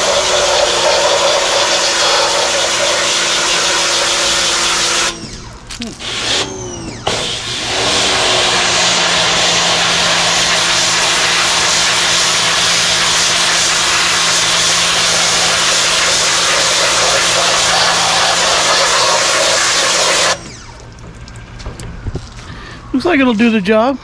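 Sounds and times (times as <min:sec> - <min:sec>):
pressure washer spraying metal: 0:00.0 - 0:05.3, 0:07.1 - 0:20.5.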